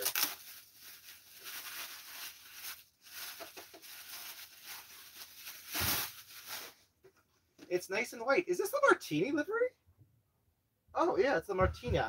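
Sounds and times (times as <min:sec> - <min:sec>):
bubble wrap rustling: 0:00.0 - 0:06.9.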